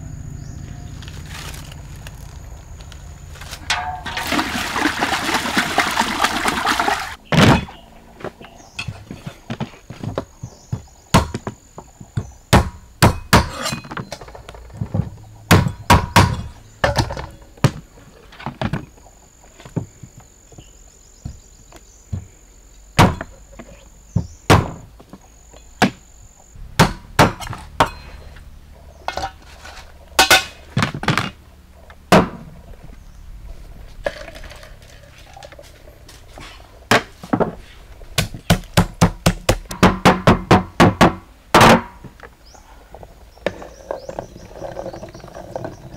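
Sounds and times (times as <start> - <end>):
cleaver chopping on wooden block: 12.5 - 13.7, 26.8 - 28.0, 38.2 - 42.0
pestle pounding in clay mortar: 38.2 - 41.9.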